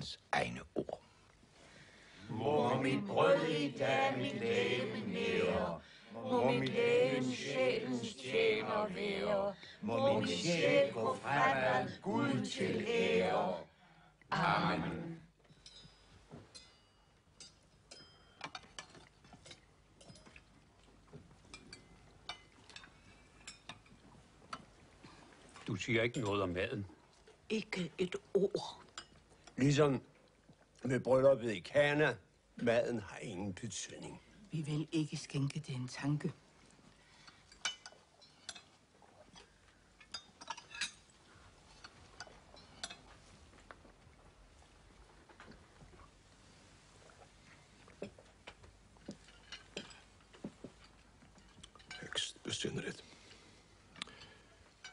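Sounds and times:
glassware and cutlery clinking: 15.4 - 20.6, 21.4 - 24.0, 26.0 - 26.5, 28.9 - 29.2, 37.3 - 43.2, 49.1 - 52.4, 54.1 - 54.9
spoons clinking on china plates: 15.6 - 20.3, 37.5 - 38.7, 40.0 - 41.1, 54.2 - 54.9.

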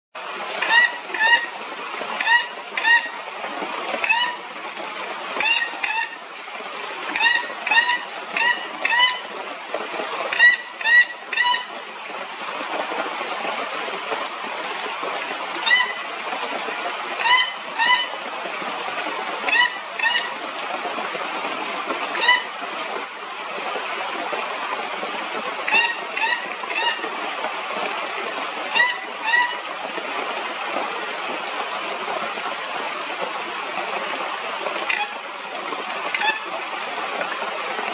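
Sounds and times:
toucan calling nasal notes: 0.6 - 1.6, 2.2 - 3.2, 4.0 - 4.5, 5.4 - 6.2, 7.1 - 9.3, 10.3 - 11.8, 15.6 - 16.0, 17.2 - 18.2, 19.5 - 20.4, 22.1 - 22.5, 25.7 - 27.1, 28.7 - 29.7, 34.9 - 35.2, 36.1 - 36.5.

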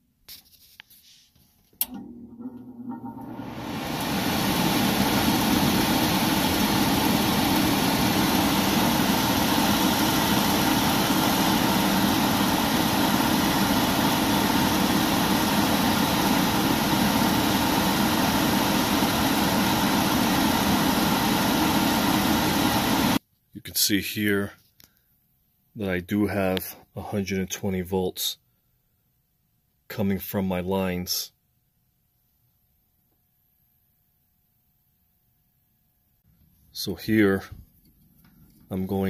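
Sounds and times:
furnace blower running: 1.8 - 23.2.

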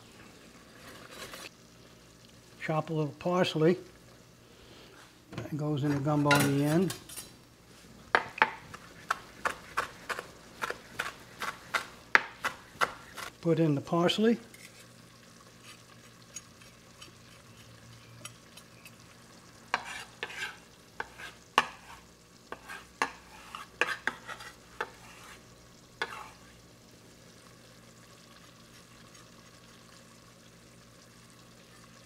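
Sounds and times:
faint steady hum: 0.0 - 32.0
spoon scraping a pot: 19.7 - 26.5.

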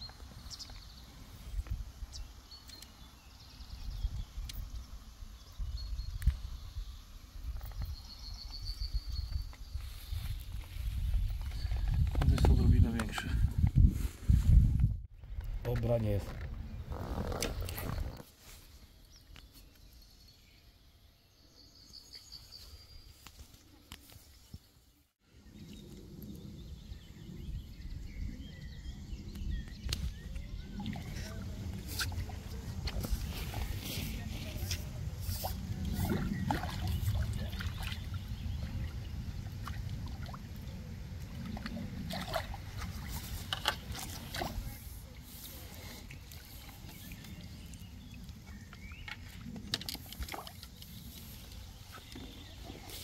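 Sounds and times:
rustling and bumping on microphone: 10.1 - 15.0
water splashing and dripping: 34.6 - 45.4, 46.1 - 51.7.

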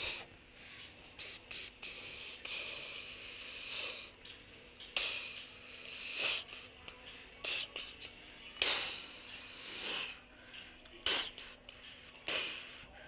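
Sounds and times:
faint steady hum: 0.0 - 13.0
hissy breath sounds: 0.0 - 13.0.

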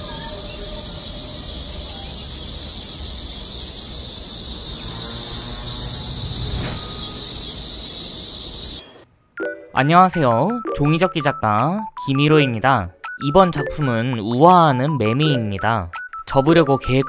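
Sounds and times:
cicadas chorus: 0.0 - 9.0
faint bird chirps: 0.0 - 9.1.

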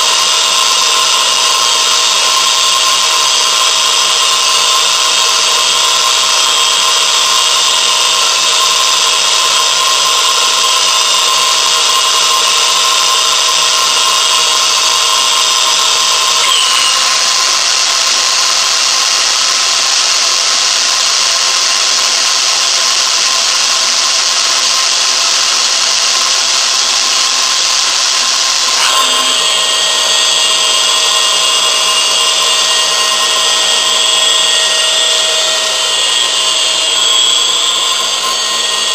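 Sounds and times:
machine hiss: 0.0 - 38.9
machine motor whining: 13.9 - 18.6, 28.6 - 38.9.

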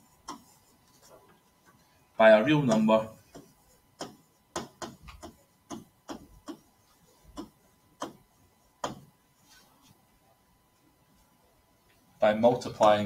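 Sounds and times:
stylus scratching on writing surface: 0.0 - 1.9, 2.6 - 10.0.

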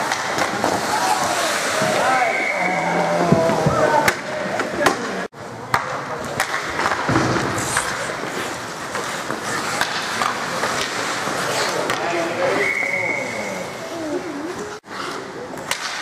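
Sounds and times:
hockey sticks clacking: 0.0 - 2.2, 3.6 - 12.8, 14.5 - 16.0
skate blades scraping ice: 0.0 - 2.4, 6.4 - 16.0.

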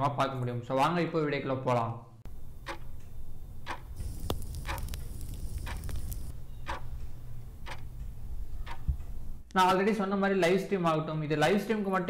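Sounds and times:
clock ticking: 2.3 - 9.8.

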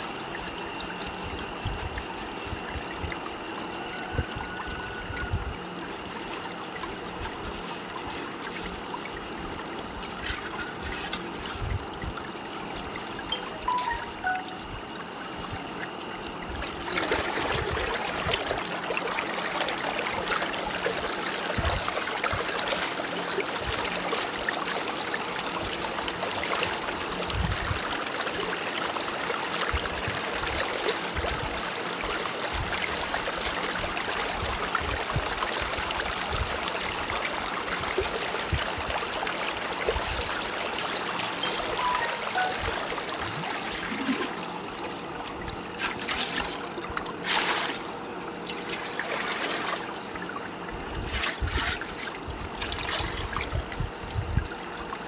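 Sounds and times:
stream water splashing: 16.8 - 27.2, 35.6 - 44.6, 45.3 - 50.0.

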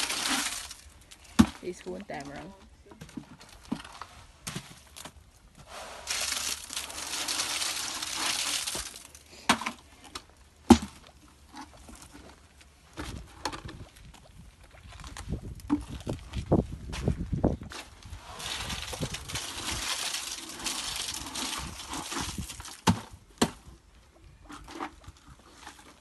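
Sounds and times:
shovel scraping and scooping: 0.0 - 0.9, 5.6 - 9.8, 17.7 - 23.1
gritty concrete sliding into bucket: 0.0 - 1.3, 5.6 - 9.2, 17.8 - 22.9.

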